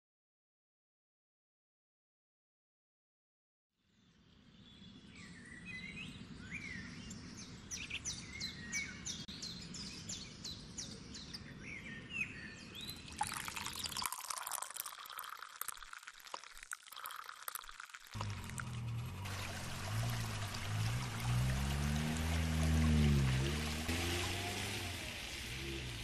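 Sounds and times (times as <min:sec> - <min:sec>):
songbirds chirping: 0:03.9 - 0:15.3
coffee pouring into a mug: 0:13.0 - 0:21.3.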